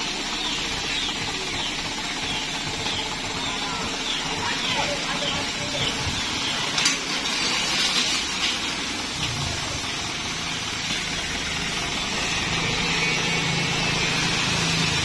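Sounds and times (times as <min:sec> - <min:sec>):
diesel truck engine running: 0:00.0 - 0:15.0
crushed stone sliding and rattling: 0:07.0 - 0:09.5.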